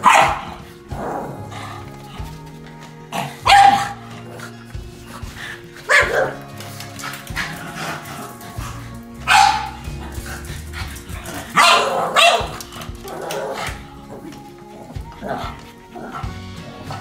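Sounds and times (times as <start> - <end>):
dogs barking: 0.0 - 2.4, 3.0 - 17.0.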